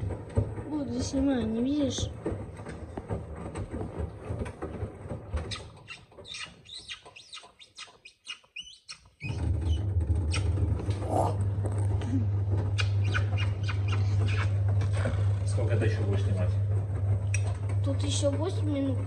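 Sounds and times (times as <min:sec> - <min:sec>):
washing machine spinning: 0:00.0 - 0:07.9, 0:09.1 - 0:19.0
high squeaks and clicks: 0:05.3 - 0:11.4, 0:12.7 - 0:15.3, 0:17.2 - 0:17.8.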